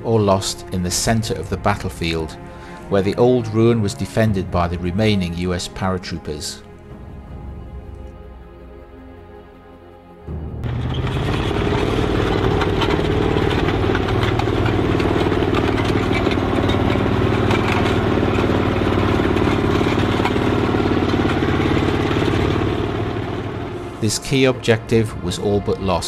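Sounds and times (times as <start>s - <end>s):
heavy tank engine idling: 10.6s - 26.0s.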